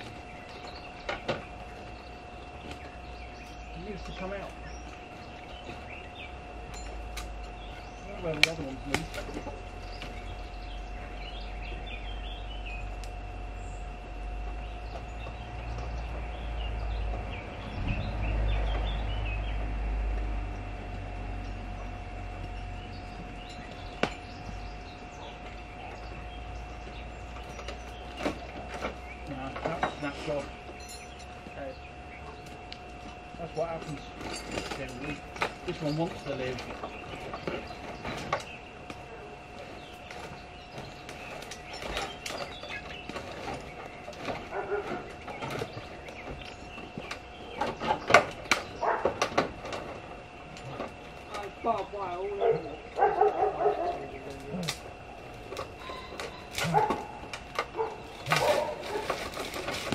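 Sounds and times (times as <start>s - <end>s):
faint two-tone hum: 0.0s - 59.9s
low rumble: 8.8s - 27.6s
sharp knocks and clanks: 26.8s - 31.6s.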